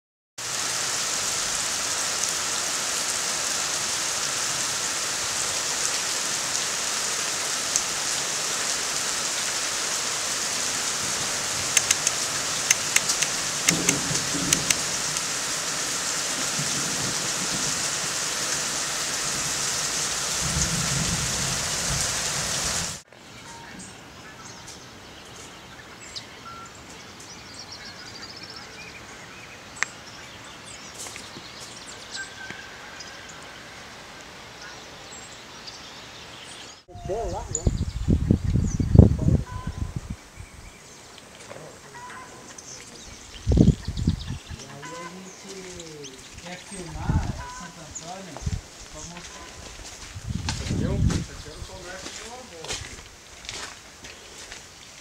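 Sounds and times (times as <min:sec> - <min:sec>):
heavy rain falling: 0:00.4 - 0:23.0, 0:37.7 - 0:55.0
drip ticks: 0:11.7 - 0:14.8
faint bird chirps: 0:41.9 - 0:47.8, 0:49.2 - 0:49.6.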